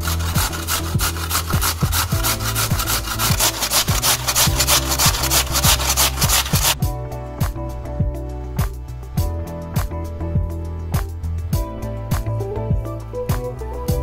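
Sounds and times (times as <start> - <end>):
potato grated on metal grater: 0.0 - 6.8.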